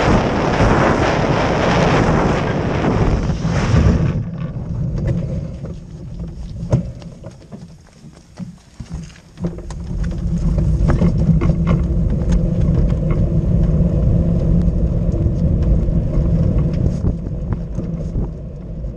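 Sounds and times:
cart wheels rumbling on asphalt: 0.0 - 18.9
cart knocking and rattling: 4.2 - 18.9.

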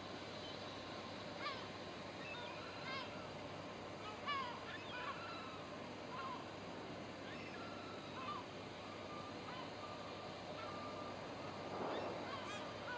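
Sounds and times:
wind: 0.0 - 12.9
distant rumble: 11.6 - 12.9
birds making harsh calls: 11.8 - 12.9.

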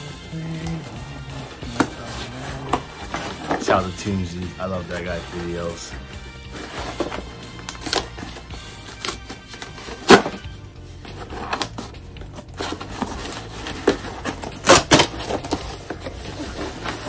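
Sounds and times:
background music: 0.0 - 17.0
package being torn open: 6.9 - 10.5, 11.1 - 16.9.

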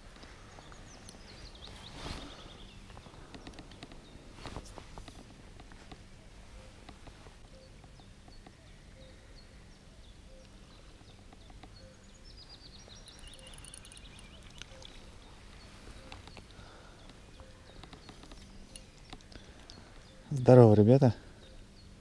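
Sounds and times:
high bird chirps: 11.4 - 20.4.

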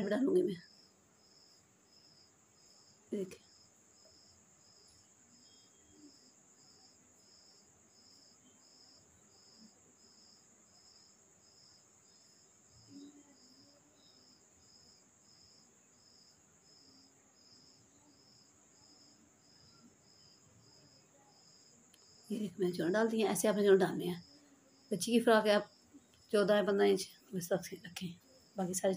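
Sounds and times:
insect buzz: 0.0 - 28.9
insect chirping: 0.0 - 28.9.

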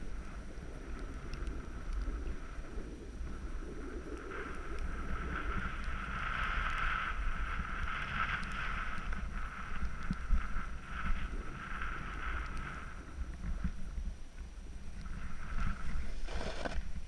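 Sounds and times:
wind rumble on microphone: 0.0 - 17.0
snowboard scraping on snow: 15.3 - 17.0.

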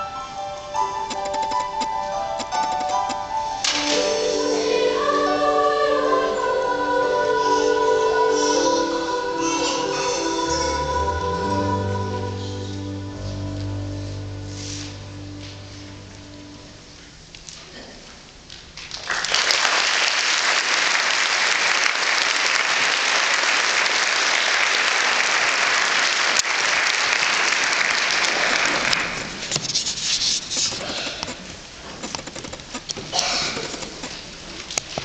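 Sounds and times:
audience applauding: 18.8 - 29.4.

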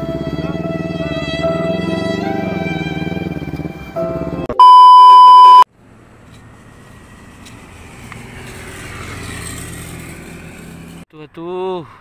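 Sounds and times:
vehicle rumble outdoors: 0.0 - 11.1
loud censor beep: 4.5 - 5.7.

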